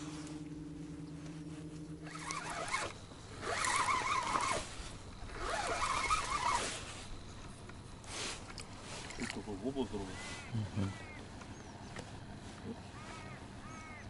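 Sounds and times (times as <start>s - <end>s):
spinning reel cranking: 2.0s - 4.7s, 5.3s - 6.8s.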